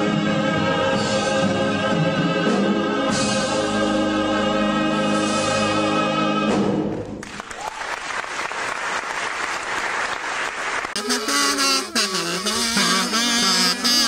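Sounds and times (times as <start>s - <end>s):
singers and orchestra holding chord: 0.0s - 7.1s
music: 0.0s - 7.2s, 11.0s - 14.0s
audience applause: 7.0s - 11.0s.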